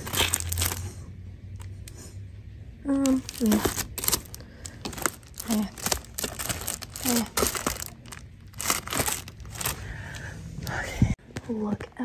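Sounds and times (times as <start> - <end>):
cellophane sleeves crinkling: 0.0 - 1.0, 2.9 - 10.2.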